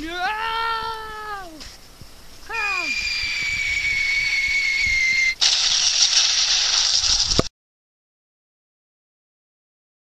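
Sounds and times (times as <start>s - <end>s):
loud hiss of noise: 1.5s - 7.5s
high whistling tone: 2.5s - 5.4s.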